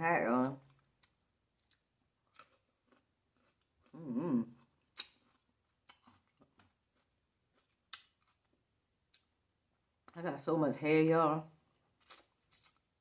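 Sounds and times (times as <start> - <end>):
wet chewing and lip smacking: 0.6 - 9.3.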